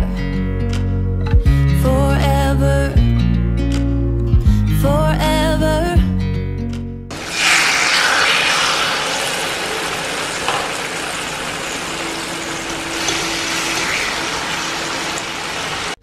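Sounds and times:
chicken sizzling in a frying pan: 7.1s - 16.0s.

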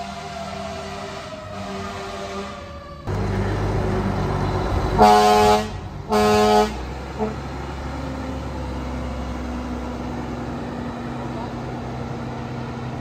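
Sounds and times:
fire engine air horn blasts: 0.0s - 2.8s, 5.0s - 7.4s
truck engine driving past: 0.0s - 13.0s.

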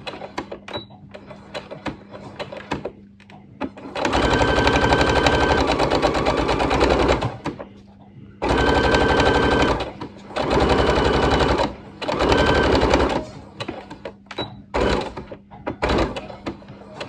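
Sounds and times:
sewing machine stitching: 3.8s - 7.6s, 8.4s - 14.1s, 14.7s - 17.0s.

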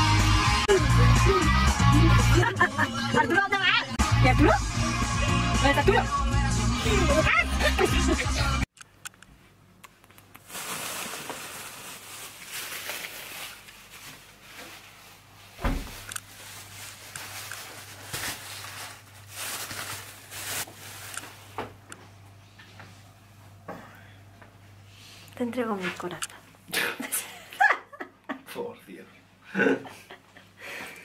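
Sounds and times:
loud thump: 15.6s - 16.0s.

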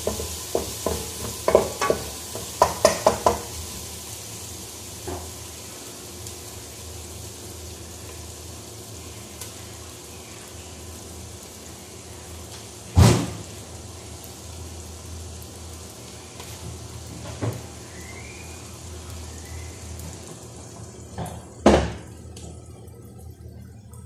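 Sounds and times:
pots and utensils knocking: 0.0s - 3.6s.

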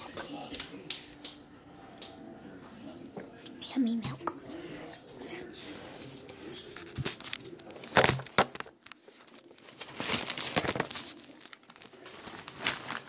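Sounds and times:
wrapping crinkling and rustling: 5.6s - 13.0s.

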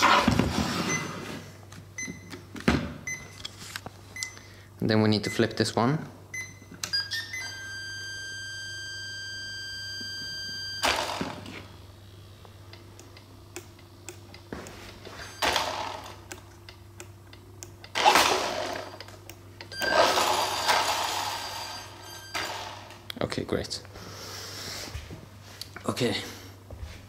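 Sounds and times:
long electronic beep: 6.4s - 10.9s.

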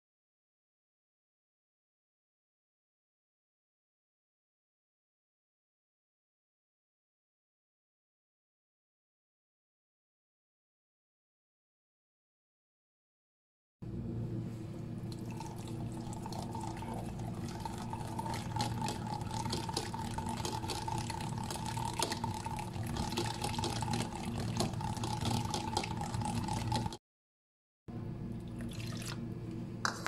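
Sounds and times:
steady low hum: 13.8s - 27.0s, 27.9s - 30.0s
whisk beating yogurt in a bowl: 15.7s - 27.0s.

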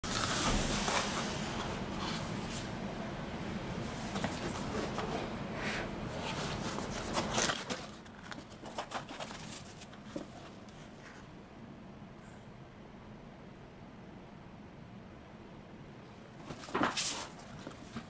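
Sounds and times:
cardboard scraping and rustling: 0.0s - 2.7s, 3.9s - 11.3s, 16.4s - 18.0s.

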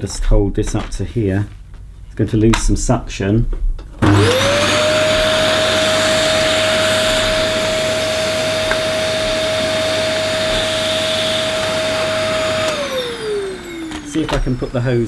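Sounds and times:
vacuum cleaner motor whine: 4.0s - 15.0s.

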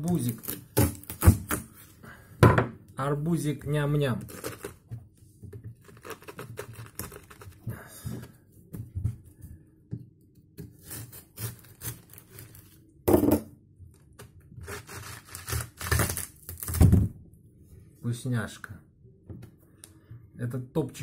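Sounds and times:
knife cutting watermelon rind: 4.2s - 4.9s, 5.8s - 7.6s, 10.6s - 12.7s.

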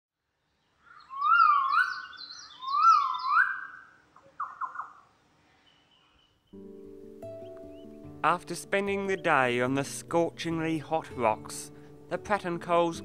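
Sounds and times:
bird whistling call: 0.9s - 5.0s.

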